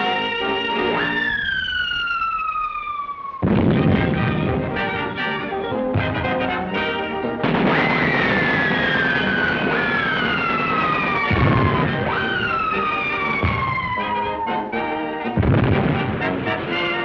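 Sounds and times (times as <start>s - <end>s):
cartoon shells whistling: 0.0s - 3.2s, 7.6s - 15.4s
low boom: 3.4s - 5.3s, 15.4s - 16.7s.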